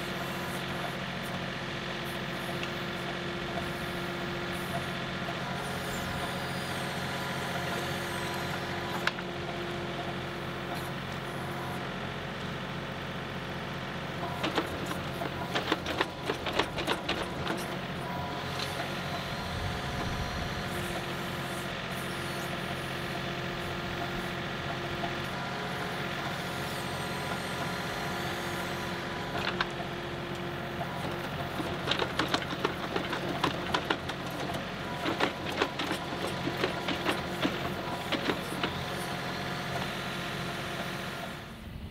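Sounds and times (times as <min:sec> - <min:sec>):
tractor diesel engine running: 0:00.0 - 0:41.9
backhoe clanks and knocks: 0:02.2 - 0:12.0, 0:14.1 - 0:21.6, 0:22.6 - 0:41.0.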